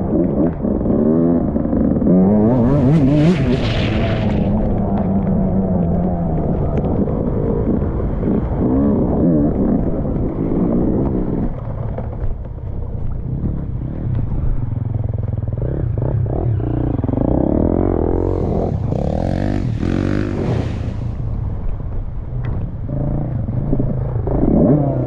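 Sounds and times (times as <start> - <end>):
dirt bike engine revving: 0.0 - 4.7, 15.4 - 21.2.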